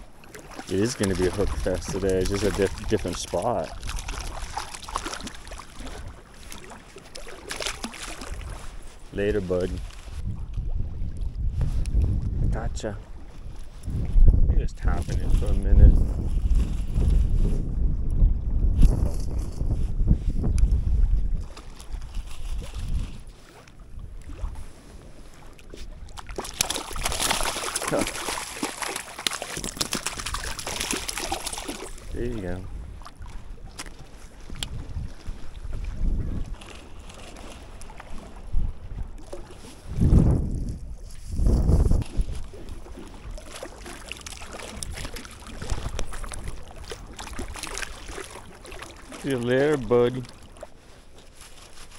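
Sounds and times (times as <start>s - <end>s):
fish splashing in water: 0.0s - 8.8s, 25.8s - 32.1s, 42.1s - 49.3s
water sloshing and lapping: 0.0s - 51.9s.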